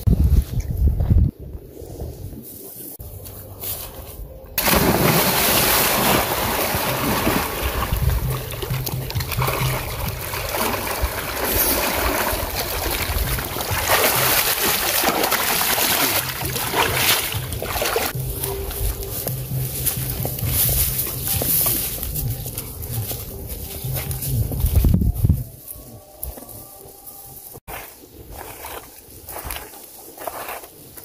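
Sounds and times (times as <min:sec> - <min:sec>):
water splashing: 0:04.6 - 0:18.3.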